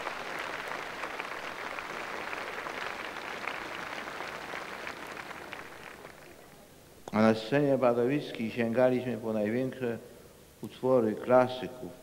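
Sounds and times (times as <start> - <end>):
large crowd applauding: 0.0 - 6.5.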